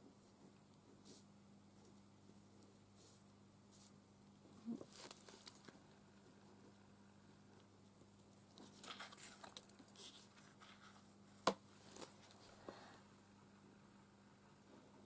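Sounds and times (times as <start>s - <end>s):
paper rustling: 4.8s - 5.8s, 8.5s - 11.1s.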